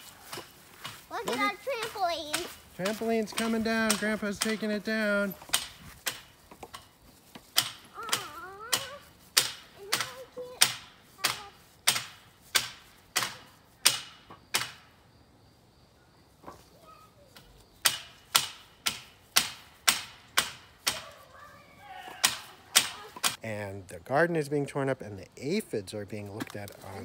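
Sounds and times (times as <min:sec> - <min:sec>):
child's voice: 0:01.1 - 0:02.6, 0:07.9 - 0:09.1, 0:09.8 - 0:11.7, 0:16.6 - 0:17.6, 0:20.9 - 0:23.2.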